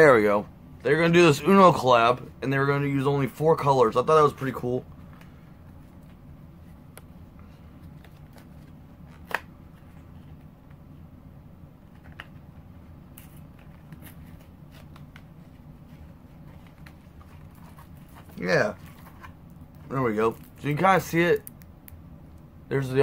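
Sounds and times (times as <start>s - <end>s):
low steady hum: 0.0s - 23.0s
playing cards rustling and clicking: 5.1s - 10.9s, 11.8s - 21.6s.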